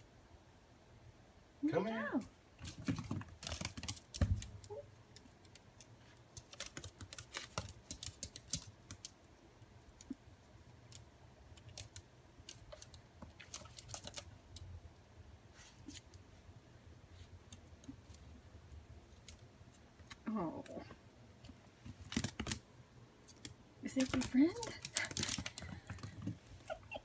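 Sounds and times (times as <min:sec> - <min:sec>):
dog claws clicking on floor: 0:02.6 - 0:09.2, 0:10.8 - 0:14.7, 0:23.2 - 0:26.5.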